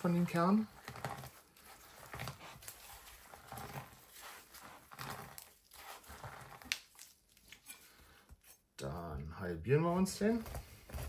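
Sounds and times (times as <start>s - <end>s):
pomegranate rubbing on cutting board: 0.0s - 6.6s.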